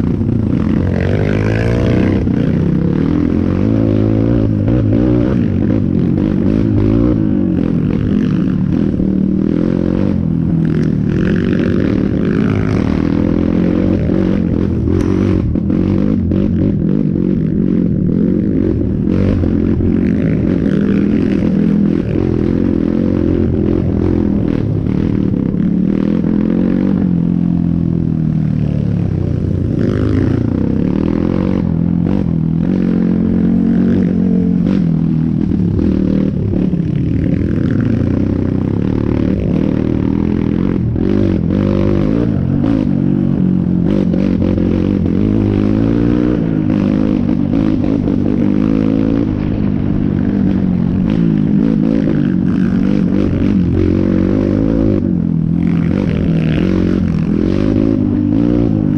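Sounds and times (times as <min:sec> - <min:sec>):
dirt bike engine revving: 0:00.0 - 0:58.9.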